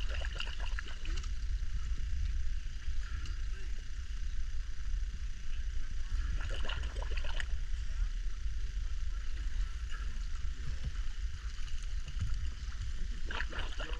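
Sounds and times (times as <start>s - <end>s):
small water splashes: 0.0s - 1.3s, 6.3s - 7.5s, 13.2s - 13.9s
water lapping rumble: 0.0s - 13.9s.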